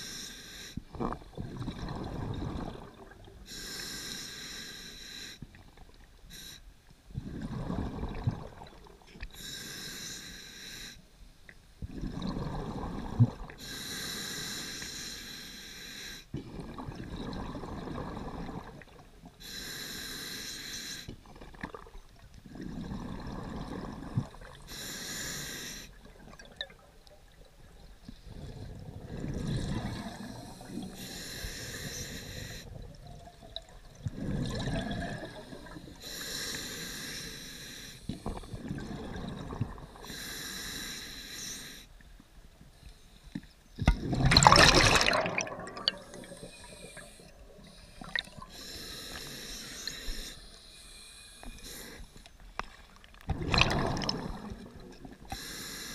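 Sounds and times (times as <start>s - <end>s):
hissing inhale through regulator: 0.0s - 0.9s, 3.4s - 5.5s, 6.3s - 7.8s, 9.3s - 11.1s, 12.6s - 16.3s, 19.4s - 21.2s, 22.5s - 26.0s, 28.2s - 32.9s, 34.1s - 39.1s, 39.9s - 42.0s, 45.6s - 52.4s, 55.3s - 55.9s.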